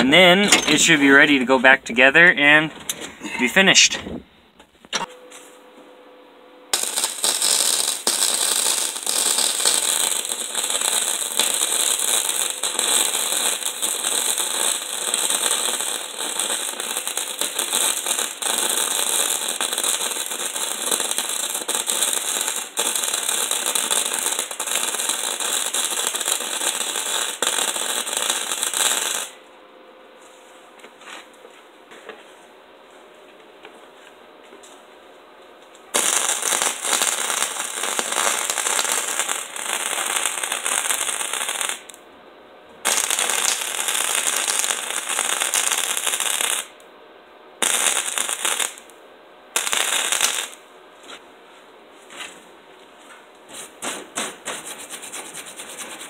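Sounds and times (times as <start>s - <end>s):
welder arc crackling: 6.7s - 29.4s, 36.0s - 42.0s, 42.9s - 46.8s, 47.6s - 48.9s, 49.6s - 50.6s.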